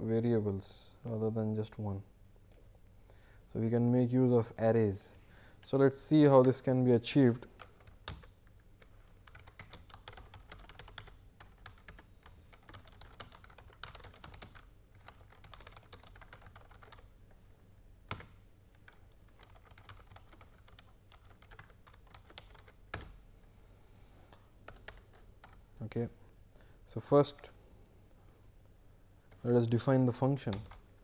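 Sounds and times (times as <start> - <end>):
faint keyboard typing: 7.4 - 17.2, 18.1 - 23.2, 24.0 - 25.7, 30.3 - 31.0.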